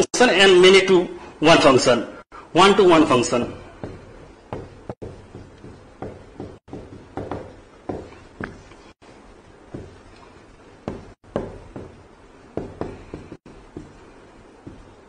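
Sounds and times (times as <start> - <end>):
writing taps and strokes on board: 3.8 - 8.9, 9.7 - 15.0.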